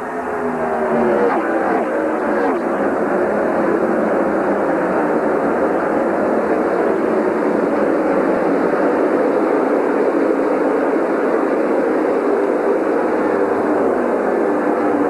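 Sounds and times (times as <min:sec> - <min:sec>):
racing car engines roaring: 0:00.0 - 0:15.0.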